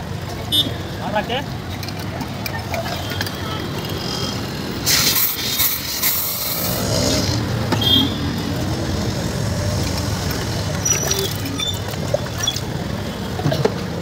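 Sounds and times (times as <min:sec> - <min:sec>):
rumble of street traffic: 0:00.0 - 0:14.0
sharp hiss of gas: 0:04.8 - 0:07.3.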